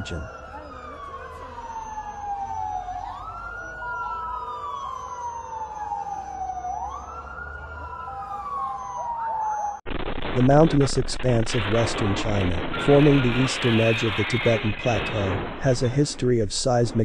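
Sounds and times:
second siren: 0:00.0 - 0:09.8, 0:12.7 - 0:15.7
siren wailing: 0:00.0 - 0:09.9, 0:12.6 - 0:15.8.

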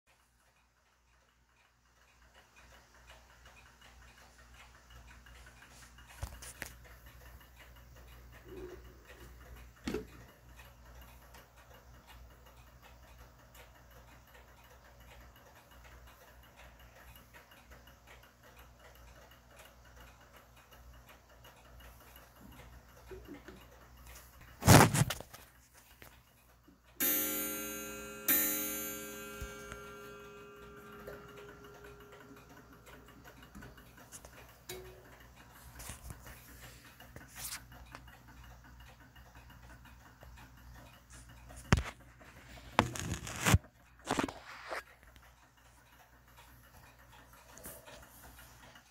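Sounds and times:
clock ticking: 0:00.1 - 0:48.9
clock gong ringing: 0:27.0 - 0:33.1.

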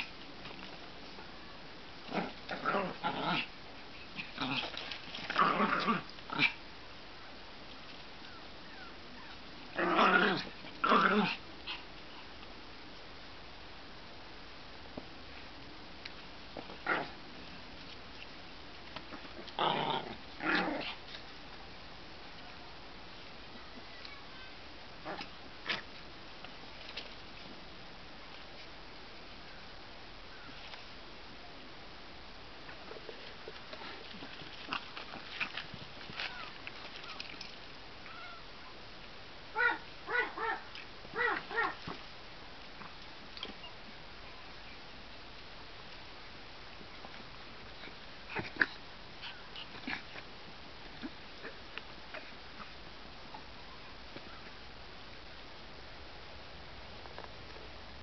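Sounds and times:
small dogs growling: 0:02.0 - 0:06.6, 0:08.3 - 0:11.9, 0:16.6 - 0:17.2, 0:19.1 - 0:21.2, 0:25.0 - 0:26.0, 0:32.8 - 0:38.4, 0:39.6 - 0:42.0, 0:47.7 - 0:53.5
small dogs barking: 0:39.6 - 0:42.0.

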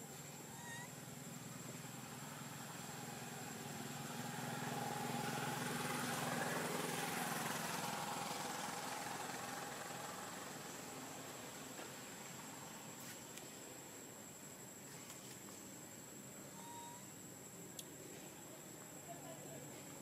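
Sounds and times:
vehicle engine passing: 0:01.0 - 0:12.8.

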